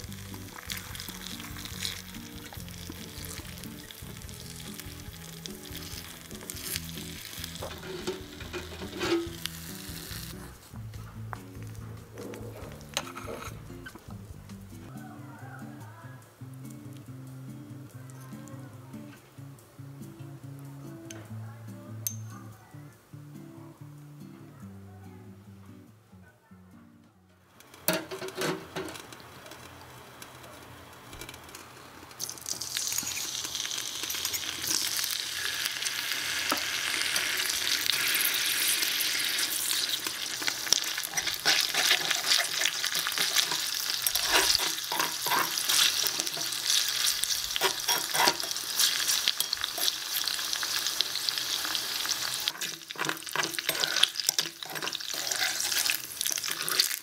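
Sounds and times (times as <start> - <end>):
oil sizzling in a frying pan: 0.0 - 10.5, 27.6 - 57.0
metal spoon scraping a pan: 5.8 - 10.6, 12.2 - 14.0, 27.6 - 57.0.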